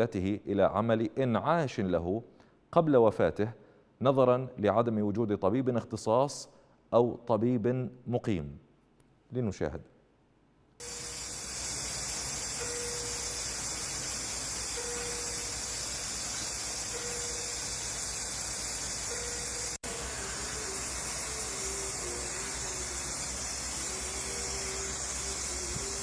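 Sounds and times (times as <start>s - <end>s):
steady hiss: 10.8s - 26.0s
faint wavering tone: 12.4s - 18.2s, 19.0s - 26.0s.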